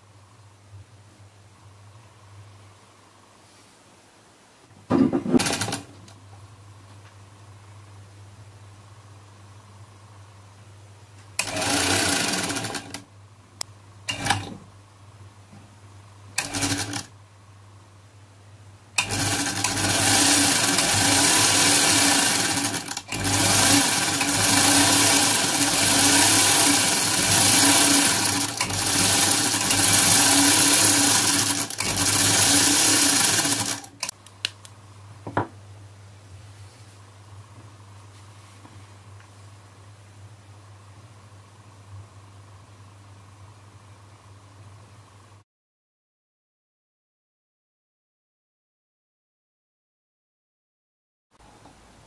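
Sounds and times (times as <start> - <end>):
sewing machine running: 5.4 - 5.9, 11.4 - 13.0, 14.1 - 14.5, 16.4 - 17.1, 19.0 - 34.1.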